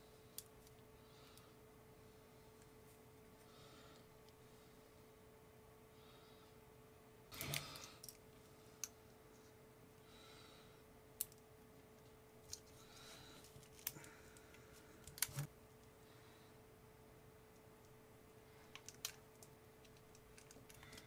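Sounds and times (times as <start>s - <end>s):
small plastic clicks: 18.7s - 21.0s.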